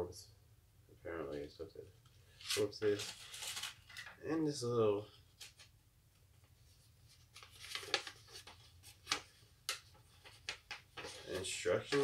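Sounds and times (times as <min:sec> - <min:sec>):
paper rustling: 0:02.3 - 0:04.1, 0:06.7 - 0:12.0
paper crackles: 0:02.4 - 0:04.0, 0:07.2 - 0:12.0.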